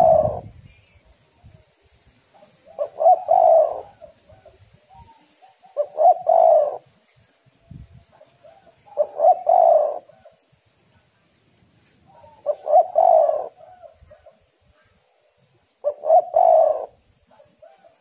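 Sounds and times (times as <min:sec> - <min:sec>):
dove cooing: 0:00.0 - 0:00.6, 0:02.3 - 0:07.1, 0:08.1 - 0:10.5, 0:12.0 - 0:15.0, 0:15.6 - 0:18.0.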